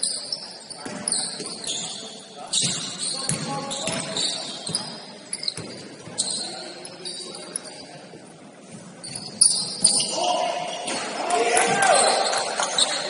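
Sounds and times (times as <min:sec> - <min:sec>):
faint voices of players: 0:00.0 - 0:13.0
sneaker squeaks: 0:00.0 - 0:13.0
basketball bouncing on court: 0:02.6 - 0:04.9, 0:05.5 - 0:06.2.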